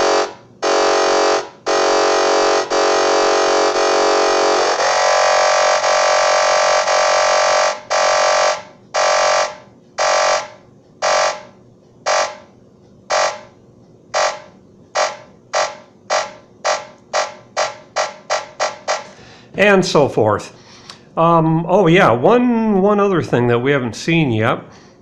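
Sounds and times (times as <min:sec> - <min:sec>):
buzzy electronic tone: 0:00.0 - 0:11.5, 0:12.1 - 0:12.5, 0:13.1 - 0:13.5, 0:14.2 - 0:19.2
electronic gated beeps: 0:02.5 - 0:11.5, 0:12.1 - 0:12.5, 0:13.1 - 0:13.5, 0:14.2 - 0:19.3.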